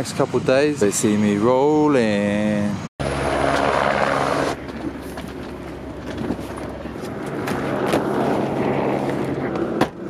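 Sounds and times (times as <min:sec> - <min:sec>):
suitcase wheels rumbling: 0:03.3 - 0:10.0.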